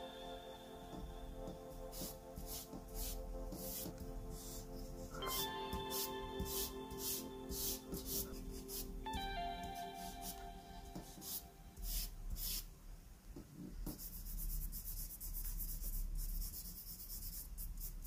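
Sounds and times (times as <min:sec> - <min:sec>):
charcoal scratching on paper: 0:01.9 - 0:08.9, 0:11.1 - 0:12.7, 0:13.9 - 0:18.0.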